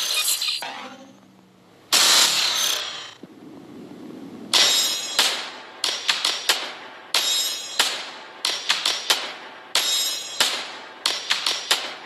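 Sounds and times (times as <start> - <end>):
sharp percussive hits: 4.5 - 12.0.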